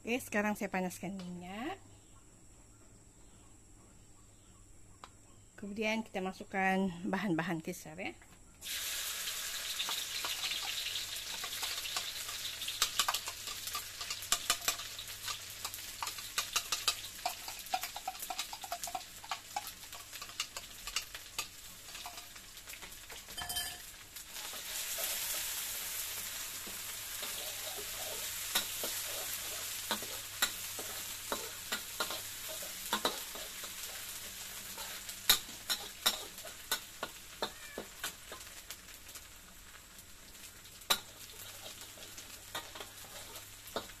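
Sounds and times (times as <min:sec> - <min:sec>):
paste sizzling in hot oil: 0:08.6 - 0:44.0
metal spatula scraping a wok: 0:24.3 - 0:38.5, 0:40.9 - 0:44.0.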